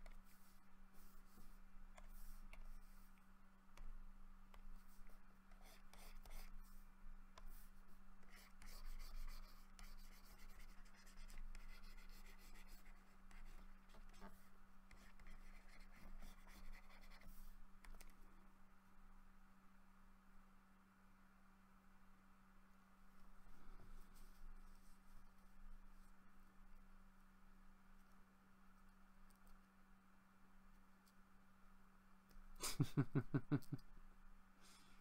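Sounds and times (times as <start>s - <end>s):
stylus scratching on tablet: 0.0s - 18.2s
low electrical hum: 0.0s - 35.0s.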